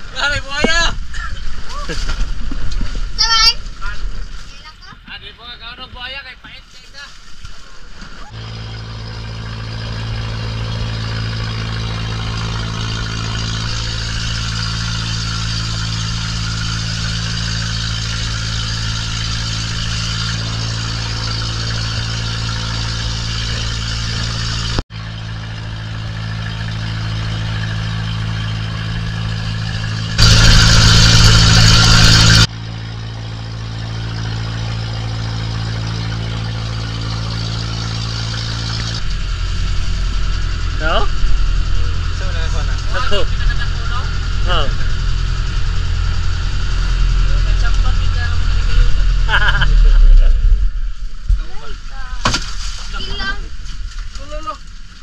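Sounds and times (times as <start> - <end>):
boat engine drone: 6.8 - 55.0
loud rush of noise: 27.4 - 32.6.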